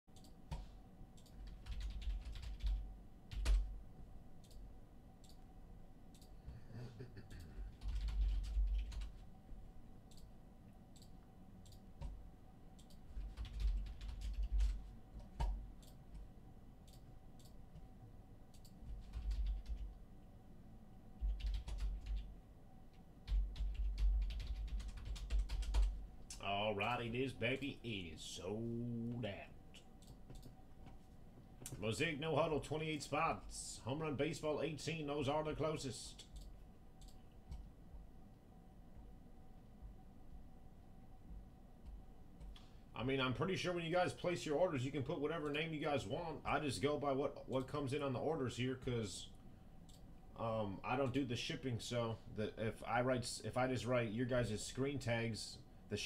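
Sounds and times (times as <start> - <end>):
typing on computer keyboard: 0.1 - 3.7, 7.4 - 9.2, 12.8 - 16.2, 18.5 - 20.0, 21.2 - 22.3, 23.2 - 26.0.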